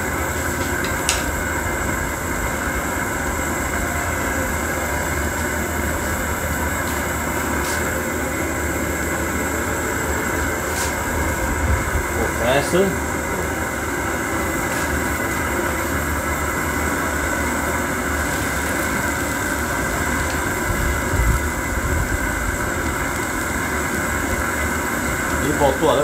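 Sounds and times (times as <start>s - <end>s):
camp stove burner roaring: 0.0s - 26.0s.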